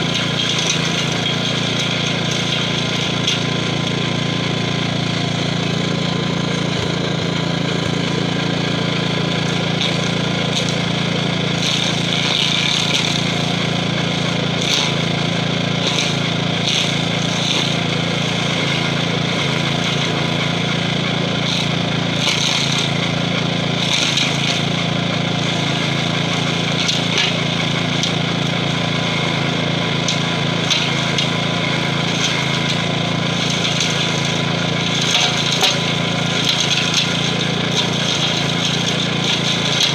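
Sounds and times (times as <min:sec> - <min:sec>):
stump grinder grinding wood: 0:00.0 - 0:39.9
tractor engine running under load: 0:00.0 - 0:39.9.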